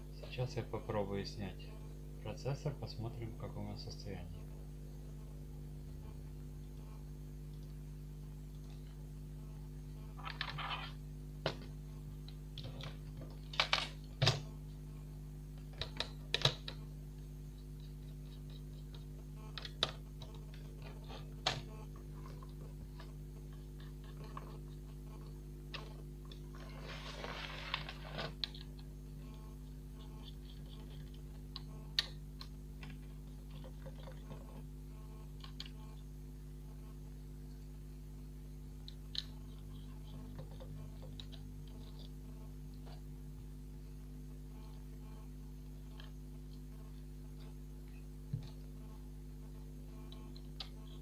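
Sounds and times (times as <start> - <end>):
steady low hum: 0.0 - 51.0
scraping rustle: 26.4 - 28.7.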